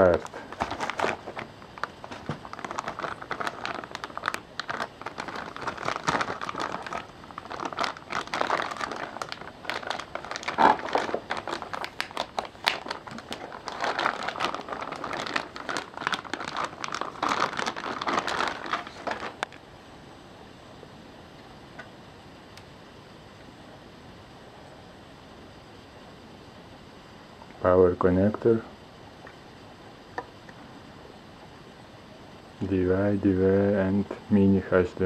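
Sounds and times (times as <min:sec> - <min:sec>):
plastic bag crinkling: 0:00.0 - 0:19.6.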